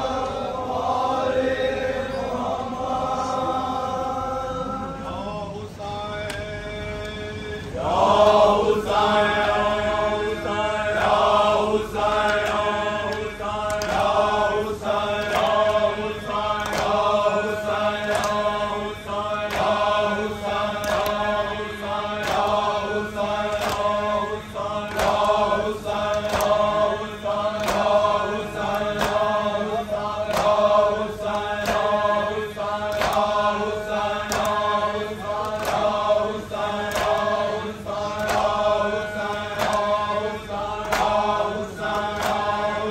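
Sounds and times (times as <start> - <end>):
men chanting a lament: 0.0 - 42.9
chest-beating slaps: 32.9 - 33.4, 34.3 - 34.7, 39.3 - 40.0.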